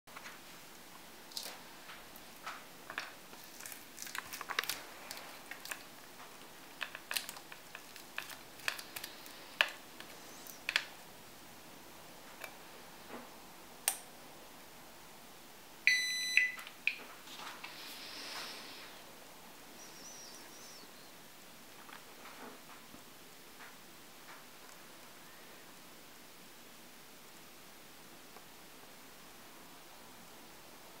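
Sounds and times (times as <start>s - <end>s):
short electronic beep: 15.9s - 16.6s.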